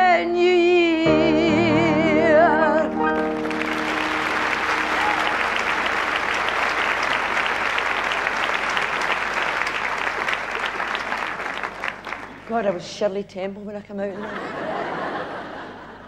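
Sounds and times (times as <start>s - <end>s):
audience applauding: 3.0s - 12.5s.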